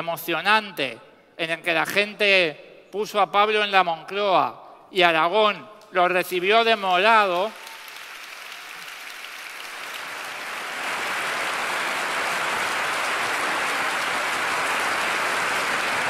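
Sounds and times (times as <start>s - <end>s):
large crowd applauding: 6.7s - 16.0s.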